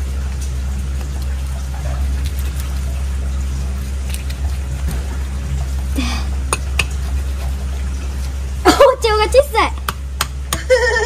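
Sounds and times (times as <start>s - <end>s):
low background hum: 0.0s - 11.0s
knife cutting fish flesh: 3.7s - 5.0s, 6.6s - 8.4s.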